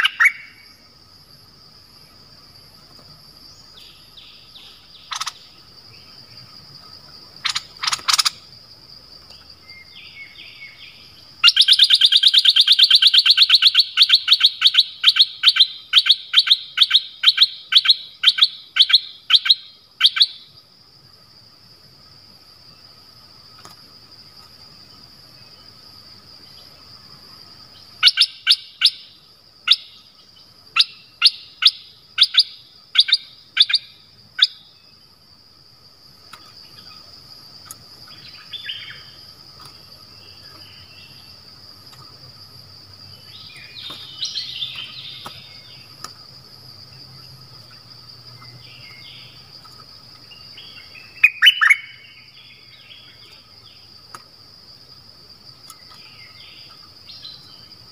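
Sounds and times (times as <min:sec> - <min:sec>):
high insect drone: 0:00.0 - 0:57.9
bird chirping and chattering: 0:04.6 - 0:05.5, 0:07.4 - 0:08.4, 0:51.2 - 0:51.9.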